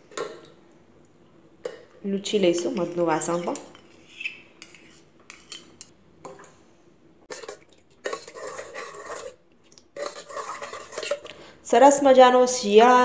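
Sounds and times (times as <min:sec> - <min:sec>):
spoon stirring liquid: 0:01.6 - 0:06.5, 0:07.3 - 0:11.5
spoon scraping steel bowl: 0:02.8 - 0:05.9, 0:07.3 - 0:09.4, 0:10.0 - 0:11.4.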